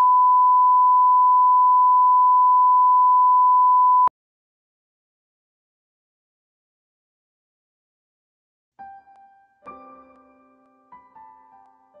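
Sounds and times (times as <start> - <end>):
pure test tone: 0.0 - 4.1.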